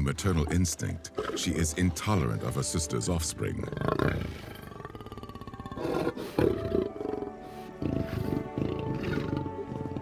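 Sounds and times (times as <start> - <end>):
background music with held tones: 0.0 - 10.0
lioness growling: 3.6 - 10.0.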